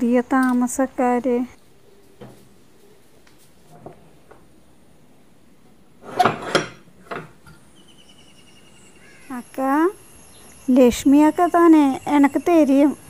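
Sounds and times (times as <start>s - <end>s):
metal bolt clanks and knocks: 6.0s - 7.6s.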